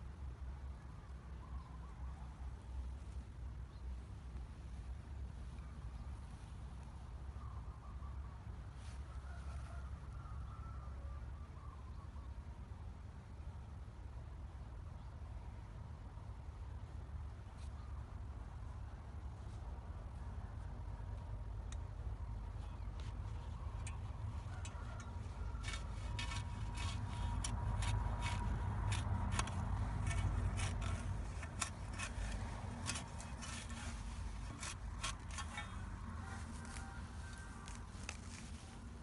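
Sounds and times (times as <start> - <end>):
sharp clicks and scrapes: 22.6 - 38.9
knife scraping into soil: 23.8 - 39.0.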